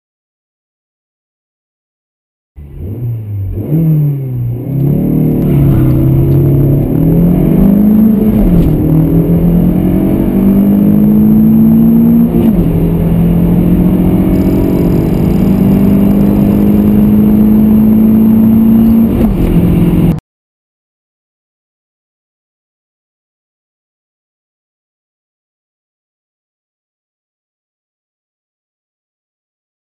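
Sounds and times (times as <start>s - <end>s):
car engines accelerating: 2.6s - 20.2s.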